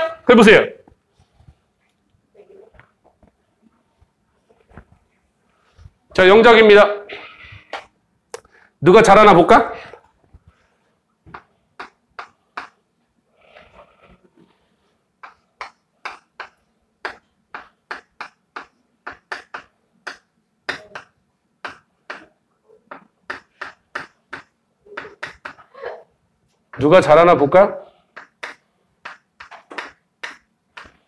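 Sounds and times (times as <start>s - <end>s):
soft rustle: 0.9s - 6.1s.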